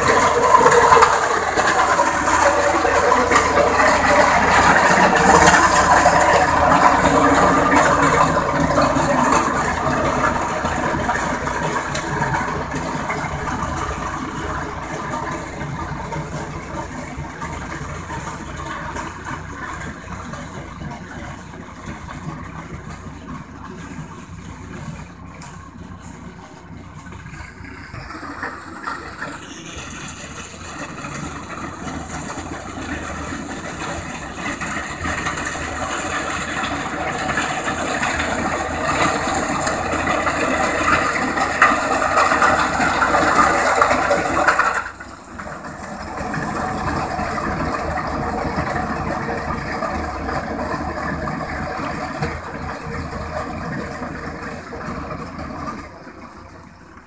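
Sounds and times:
tractor diesel engine under load: 0.0 - 57.0.

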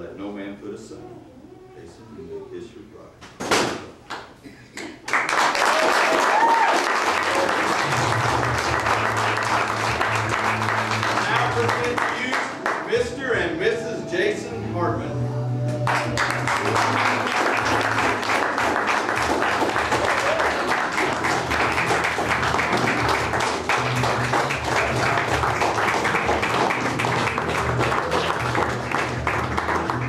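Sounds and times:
people applauding: 4.8 - 12.9, 15.8 - 30.0
music playing: 7.1 - 30.0.

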